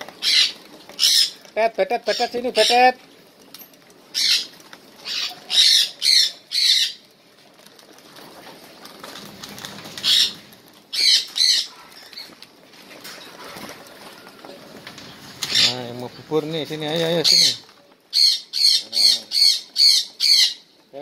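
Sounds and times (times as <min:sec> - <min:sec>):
cockatiels squawking: 0:00.2 - 0:01.4, 0:04.1 - 0:07.0, 0:09.9 - 0:12.3, 0:15.4 - 0:15.8, 0:17.1 - 0:20.7.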